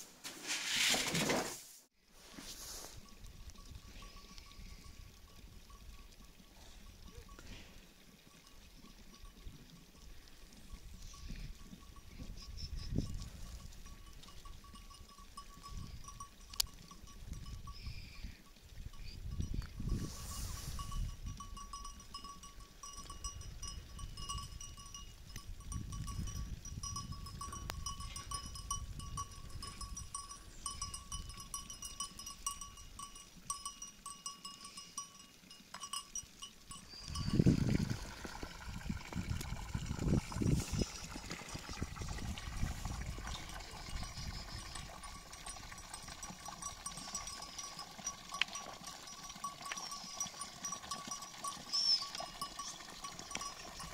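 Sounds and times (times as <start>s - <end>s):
goat bells ringing: 3.0s - 37.8s, 42.7s - 53.9s.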